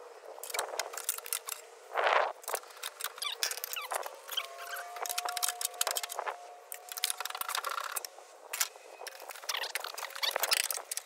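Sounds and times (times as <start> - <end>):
thin steady squeak: 3.1 - 8.1, 8.7 - 11.0.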